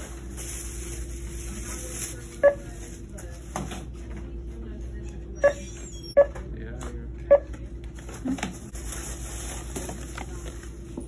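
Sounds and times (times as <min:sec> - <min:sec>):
store hum: 0:00.0 - 0:11.0
electronic checkout beeps: 0:02.4 - 0:02.7, 0:05.4 - 0:06.4, 0:07.3 - 0:07.5.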